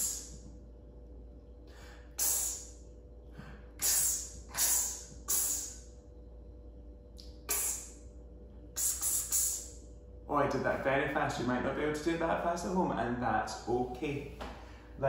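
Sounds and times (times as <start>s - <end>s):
man making hissing phonics sound: 0.0s - 0.4s, 2.2s - 2.8s, 3.8s - 5.9s, 7.2s - 8.0s, 8.8s - 9.8s.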